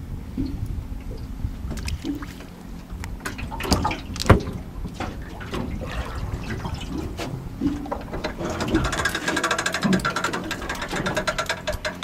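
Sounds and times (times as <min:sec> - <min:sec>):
water lapping around a boat: 0:00.0 - 0:12.0
gear clicks and knocks: 0:07.0 - 0:12.0.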